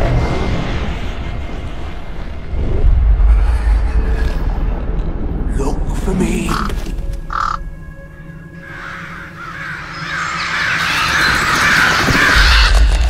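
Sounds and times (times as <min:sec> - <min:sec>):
raven cawing: 0:06.5 - 0:13.0.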